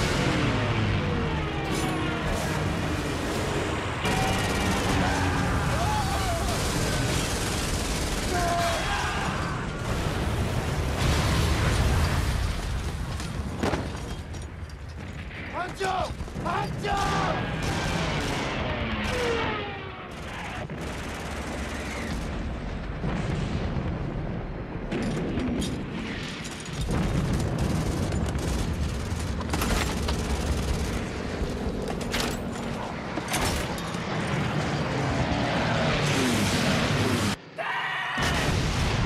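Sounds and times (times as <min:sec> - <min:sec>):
explosions: 0:01.9 - 0:14.3, 0:15.0 - 0:31.4, 0:38.2 - 0:39.0
machine-gun fire: 0:02.3 - 0:09.0, 0:16.1 - 0:23.9, 0:26.9 - 0:31.6
battle din: 0:04.0 - 0:07.3, 0:08.2 - 0:09.9, 0:15.5 - 0:17.8.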